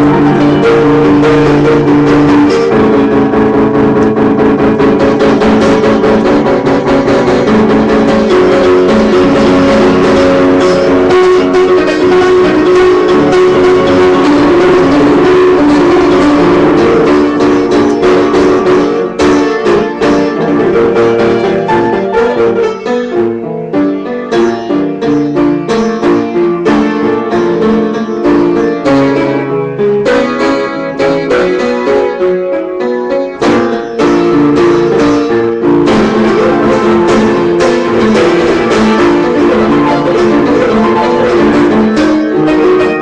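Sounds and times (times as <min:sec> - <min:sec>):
upright piano chords: 0:00.0 - 0:43.0.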